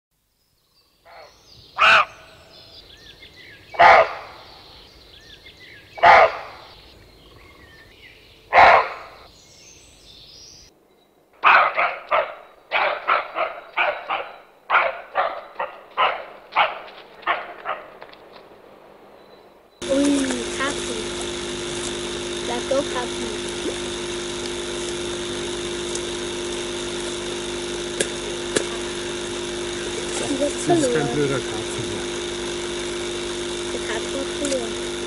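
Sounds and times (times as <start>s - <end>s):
faint birdsong: 0.2s - 16.4s, 17.8s - 19.9s
dog barking: 1.1s - 2.2s, 3.8s - 4.4s, 6.0s - 6.7s, 8.5s - 9.2s, 11.4s - 18.0s.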